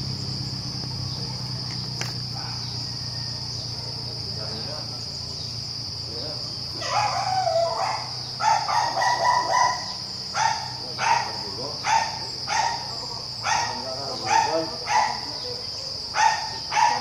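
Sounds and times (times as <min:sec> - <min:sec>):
high-pitched insect drone: 0:00.0 - 0:17.0
dog barking: 0:02.3 - 0:02.8, 0:03.7 - 0:04.2, 0:06.8 - 0:17.0.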